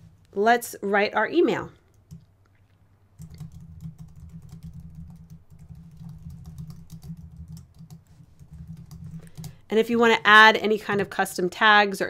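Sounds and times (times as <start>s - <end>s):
computer keyboard typing: 1.9s - 2.3s, 3.2s - 10.4s.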